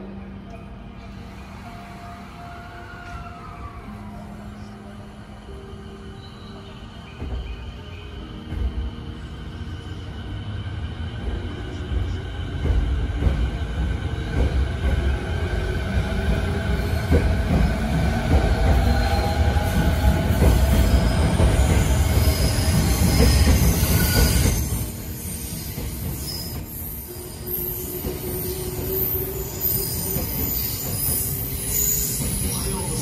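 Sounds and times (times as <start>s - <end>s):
train wheels rumbling on rail: 6.8s - 33.0s.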